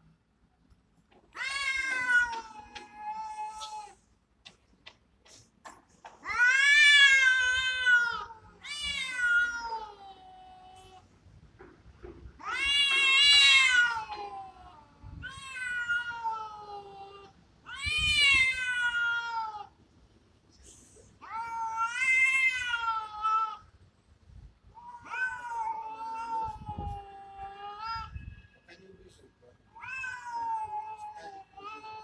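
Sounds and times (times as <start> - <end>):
cats yowling: 1.4 - 4.0, 6.2 - 11.0, 12.4 - 19.7, 21.2 - 23.6, 24.7 - 28.1, 29.7 - 32.0.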